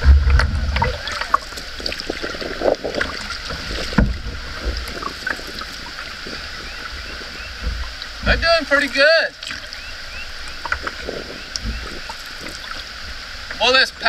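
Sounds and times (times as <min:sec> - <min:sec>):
low rumble: 0:00.0 - 0:08.5
paddle splashes and drips: 0:00.0 - 0:14.0.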